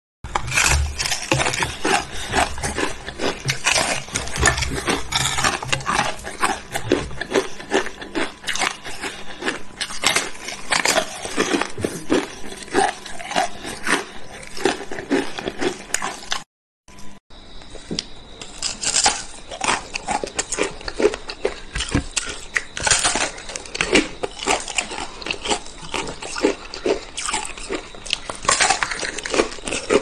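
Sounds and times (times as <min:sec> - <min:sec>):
ice being chewed: 0:00.3 - 0:16.5, 0:18.4 - 0:30.0.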